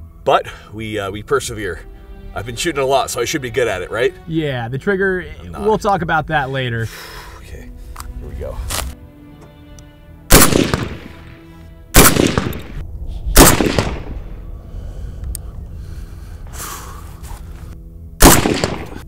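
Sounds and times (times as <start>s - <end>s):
background music: 0.0s - 19.0s
suppressed rifle shots: 10.3s - 11.4s, 12.0s - 12.8s, 13.4s - 14.2s, 18.2s - 19.0s.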